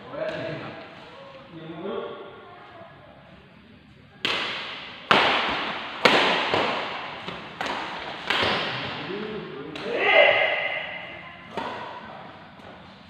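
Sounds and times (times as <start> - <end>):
rackets hitting shuttlecock: 4.2 - 9.0, 9.7 - 12.1.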